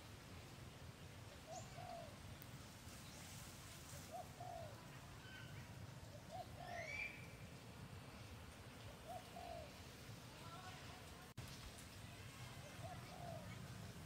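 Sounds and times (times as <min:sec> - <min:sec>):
dove cooing: 0:01.4 - 0:02.2, 0:04.0 - 0:05.5, 0:06.1 - 0:07.1, 0:08.9 - 0:09.9, 0:12.6 - 0:13.7
bird chirp: 0:04.1 - 0:07.4.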